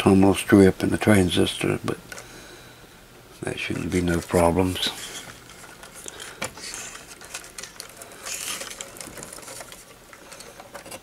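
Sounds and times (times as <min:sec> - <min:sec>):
circuit board and wires handled: 0:03.4 - 0:11.0.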